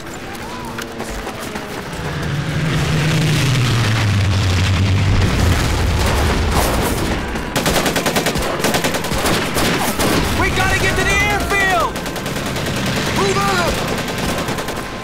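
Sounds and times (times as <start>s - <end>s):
low rumbling: 0.0s - 7.8s
propeller planes droning overhead: 0.0s - 15.0s.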